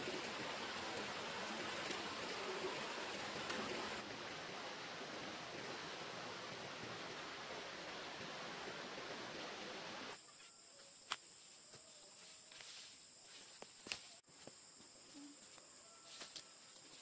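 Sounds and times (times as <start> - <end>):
steady rushing hiss: 0.0 - 10.2.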